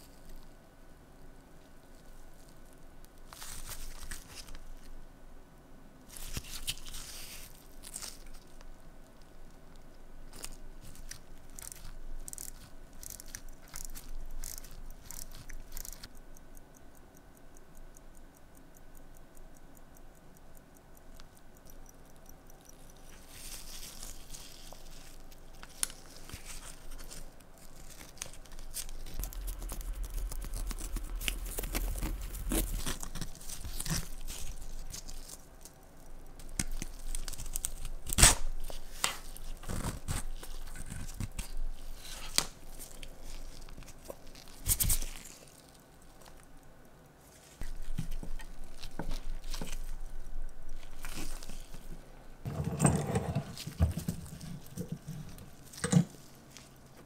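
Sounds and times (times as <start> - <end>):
strap scraping and rustling: 50.8 - 57.0.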